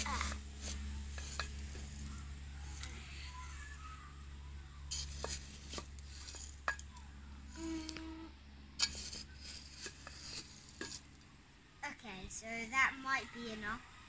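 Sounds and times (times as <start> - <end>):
trowel scraping gravel: 0.0 - 3.8, 4.9 - 8.0, 8.8 - 11.2
short low hum: 0.0 - 11.7.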